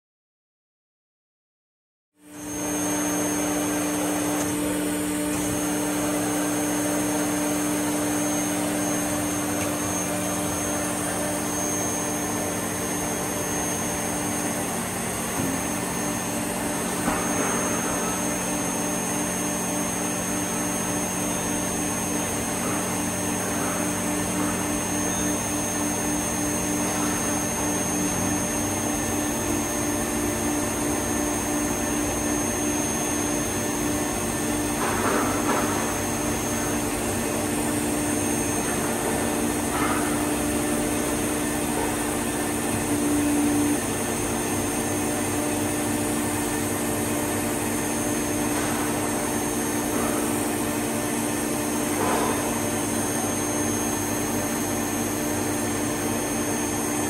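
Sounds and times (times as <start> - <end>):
lathe mechanical hum: 2.2 - 57.0.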